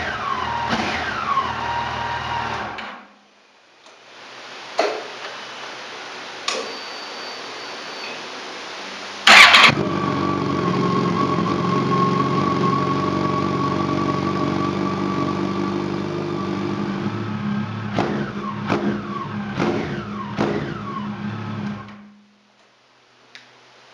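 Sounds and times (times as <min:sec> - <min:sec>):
motorcycle engine revving: 0:00.0 - 0:02.8, 0:09.3 - 0:22.0
motorcycle starter turning over: 0:09.3 - 0:09.8.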